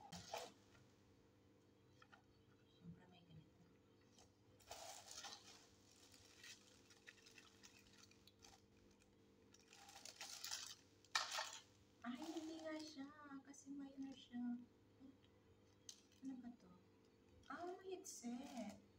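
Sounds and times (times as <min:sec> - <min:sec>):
plastic packaging crinkling: 0:04.6 - 0:13.1, 0:17.4 - 0:18.9.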